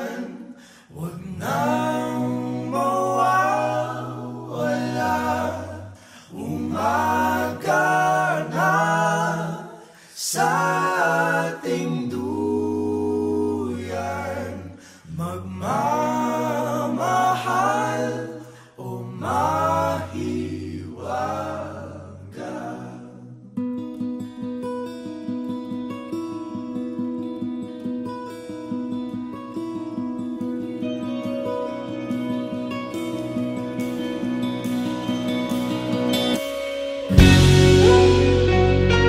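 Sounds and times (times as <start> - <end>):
a cappella group singing harmony: 0.0 - 23.5.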